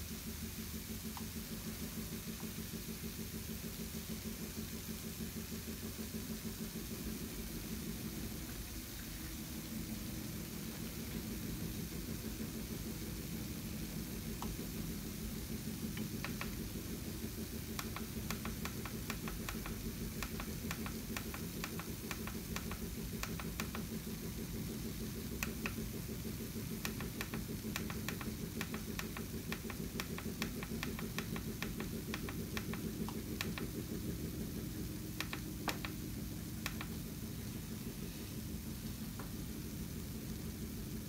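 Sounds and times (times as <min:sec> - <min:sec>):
pan ticking and crackling: 0:15.8 - 0:33.9.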